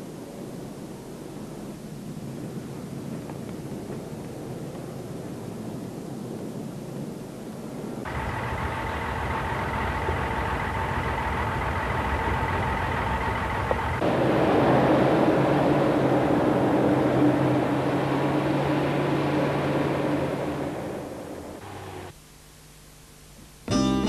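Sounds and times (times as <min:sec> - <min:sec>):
vehicle engine running: 0:08.1 - 0:22.2.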